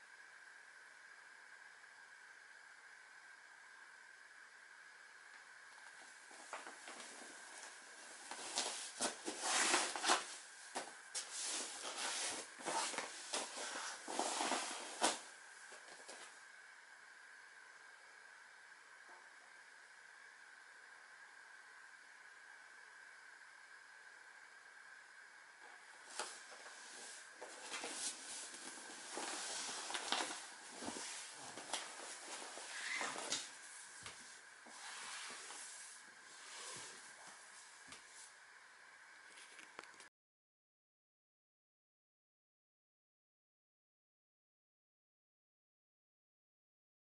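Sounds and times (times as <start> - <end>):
faint steady hiss: 0.0 - 40.1
body rustling on exercise mat: 6.3 - 16.3, 26.1 - 38.3
body scuffing on exercise mat: 6.3 - 16.3
hands sliding on mat: 6.3 - 16.3, 26.1 - 38.4.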